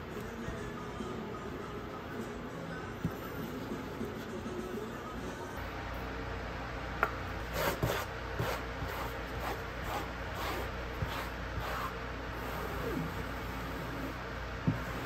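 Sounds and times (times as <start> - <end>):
brush dragging paint on paper: 7.5 - 15.0.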